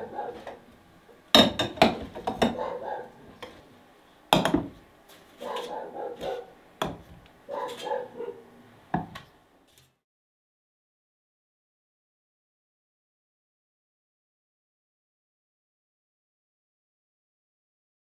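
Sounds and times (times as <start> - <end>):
glass jars clinking: 1.4 - 2.6.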